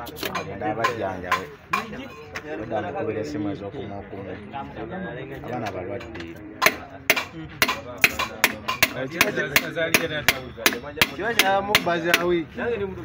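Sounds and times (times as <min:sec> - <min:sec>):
steel tool tapping on metal: 0:06.0 - 0:12.3.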